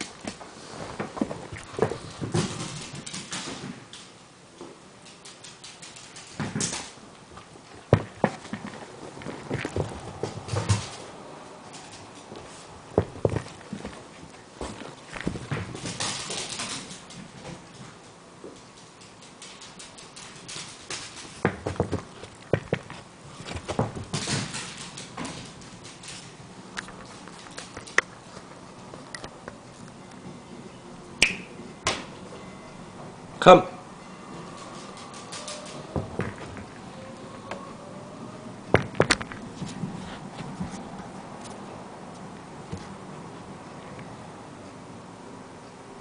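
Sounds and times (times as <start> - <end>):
dog claws clattering on wood floor: 1.2 - 4.1, 5.0 - 7.0, 7.7 - 11.0, 14.6 - 28.1.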